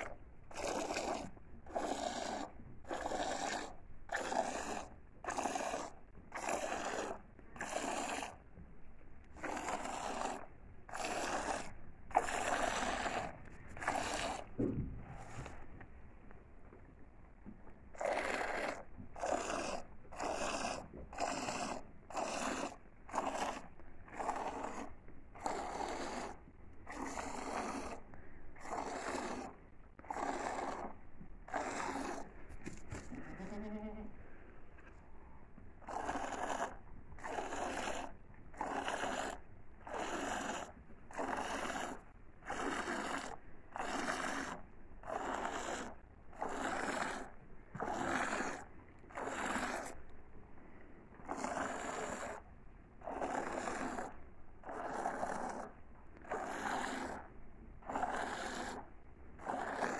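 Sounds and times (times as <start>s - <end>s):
milk squirting into bucket: 0.0s - 33.5s, 34.8s - 59.9s
goat bleating: 33.1s - 34.2s.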